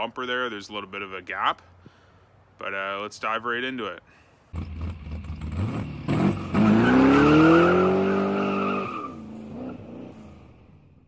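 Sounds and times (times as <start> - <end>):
car engine revving: 4.6 - 10.9
tyre screech: 6.1 - 9.3.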